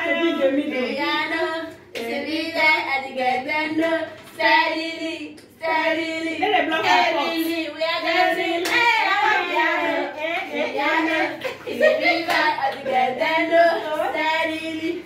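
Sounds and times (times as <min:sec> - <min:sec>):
women singing held notes: 0:00.0 - 0:15.0.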